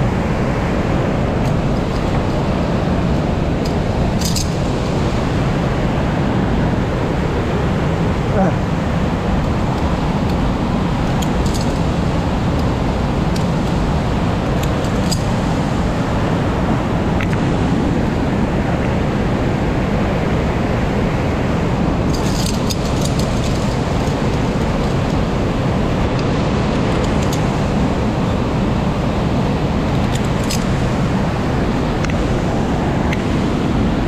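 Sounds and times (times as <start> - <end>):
mountain stream rushing: 0.0 - 34.0.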